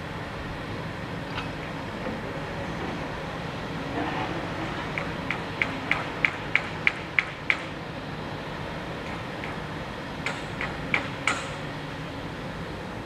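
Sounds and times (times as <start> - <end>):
metallic knocks from machinery: 10.2 - 11.6.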